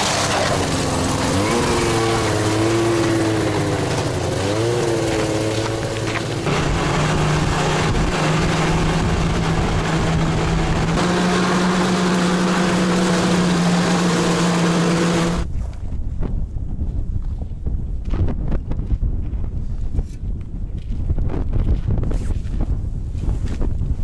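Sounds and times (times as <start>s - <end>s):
snowmobile engine running: 0.0s - 15.5s
wind buffeting microphone: 5.8s - 11.2s, 15.3s - 24.0s.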